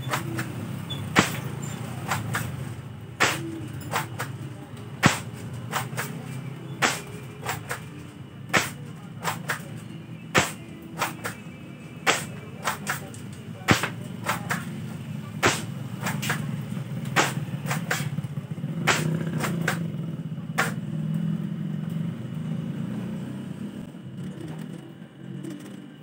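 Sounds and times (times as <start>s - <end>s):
pump action racking clack: 0.0s - 2.6s
airsoft shotgun shots: 1.2s - 1.5s, 3.2s - 4.4s, 5.0s - 6.2s, 6.8s - 7.8s, 8.5s - 9.7s, 10.4s - 11.4s, 12.1s - 13.1s, 13.7s - 14.7s, 15.4s - 16.4s, 17.2s - 18.2s, 18.9s - 19.8s.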